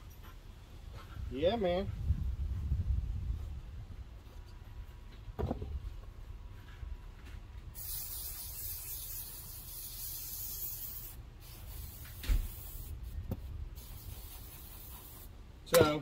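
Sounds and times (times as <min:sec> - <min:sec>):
aerosol can hissing: 0:07.8 - 0:13.0, 0:13.8 - 0:15.3.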